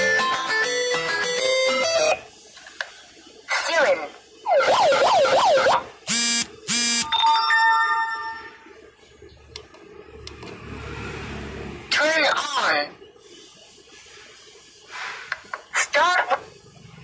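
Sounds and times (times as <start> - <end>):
siren wail from megaphone: 4.4 - 7.2
short loud buzzy beeps: 6.1 - 7.3.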